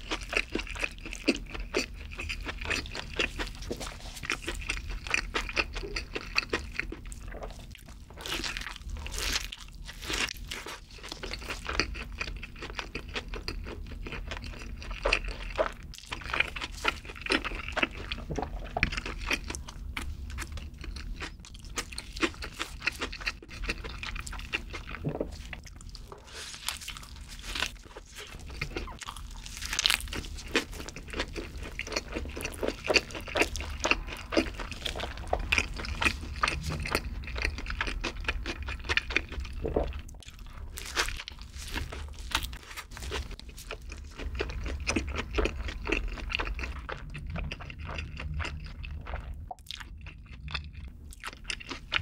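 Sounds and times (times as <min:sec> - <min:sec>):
chewing with crunching: 0:00.0 - 0:52.0.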